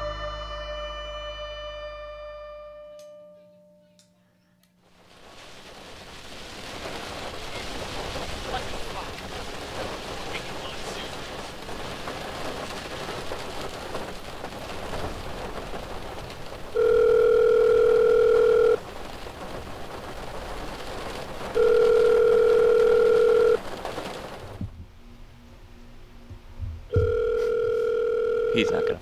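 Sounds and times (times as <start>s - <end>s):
heavy rain on windshield: 4.8s - 25.0s, 26.4s - 29.0s
telephone ringback tone: 16.8s - 18.8s, 21.6s - 23.6s, 26.9s - 29.0s.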